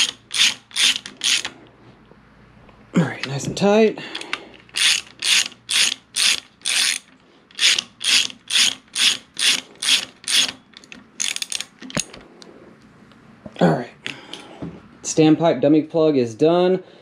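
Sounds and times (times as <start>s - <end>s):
socket ratchet clicking: 0.0s - 1.6s, 4.2s - 12.1s.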